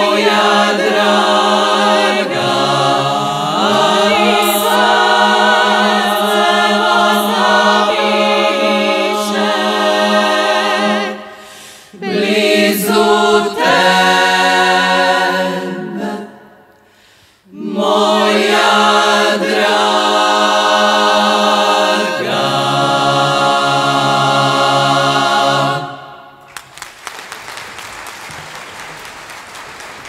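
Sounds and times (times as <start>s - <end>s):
women's choir singing a cappella: 0.0s - 16.7s, 17.5s - 26.4s
audience applause: 26.4s - 30.0s.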